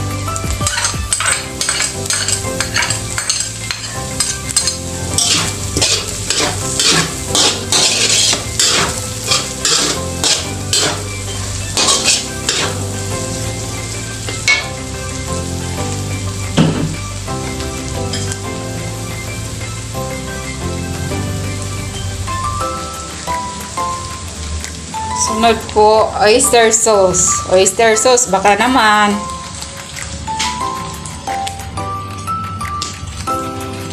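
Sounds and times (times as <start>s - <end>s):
meat sizzling: 0.0s - 33.9s
metal spatula scraping wok: 0.6s - 13.0s.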